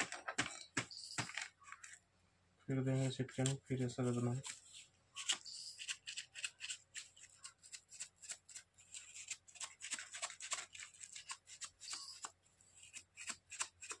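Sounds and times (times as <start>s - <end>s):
scratchy paper rustles: 2.9s - 14.0s.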